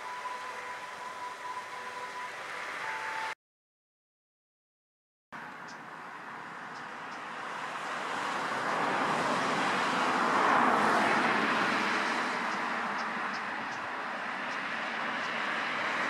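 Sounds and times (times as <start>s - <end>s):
vehicle passing: 5.5s - 16.0s.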